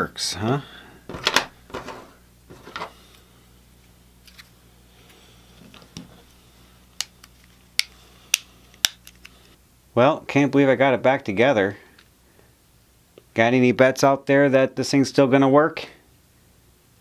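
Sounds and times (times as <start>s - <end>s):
plastic case handling: 1.1s - 2.9s.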